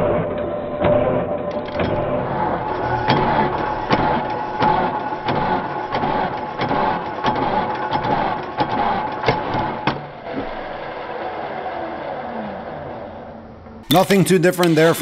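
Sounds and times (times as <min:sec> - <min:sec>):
starter motor cranking engine: 0:01.6 - 0:13.5.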